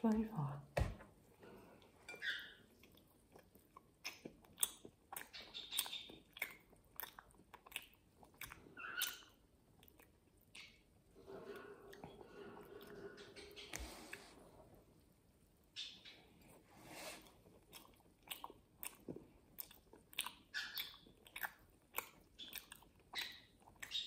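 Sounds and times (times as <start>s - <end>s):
chewing flaky pastry: 1.5s - 24.0s
wet mouth clicks: 2.8s - 10.8s, 17.7s - 24.0s.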